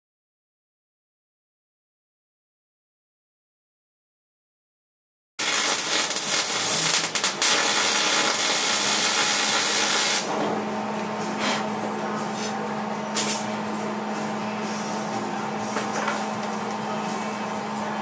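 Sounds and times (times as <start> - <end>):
welding arc crackling and hissing: 5.4 - 10.3
steady hum: 5.4 - 18.0.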